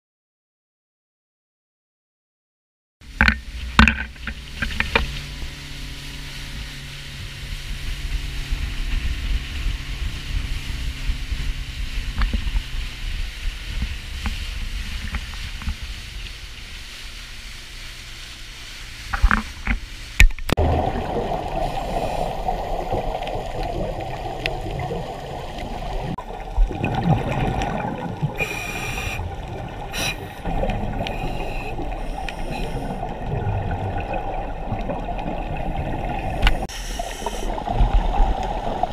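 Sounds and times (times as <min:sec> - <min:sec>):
wind on microphone: 0:06.4 - 0:16.6
diver exhaling bubbles: 0:20.6 - 0:38.9
muffled underwater sound: 0:20.6 - 0:38.9.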